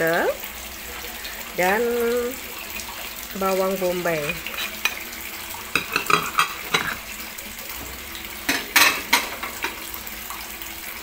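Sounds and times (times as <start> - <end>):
ceramic plates clinking on table: 5.7 - 7.0, 8.5 - 9.8.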